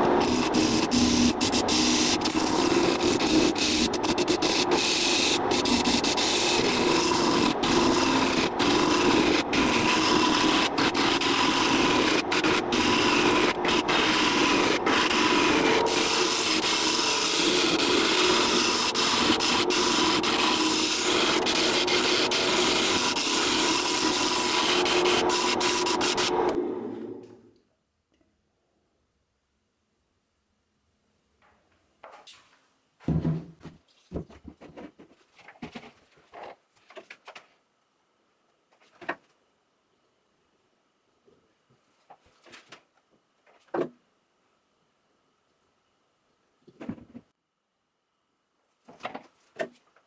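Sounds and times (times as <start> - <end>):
gouge scraping spinning wood: 0.0 - 26.6
lathe motor hum: 0.0 - 27.3.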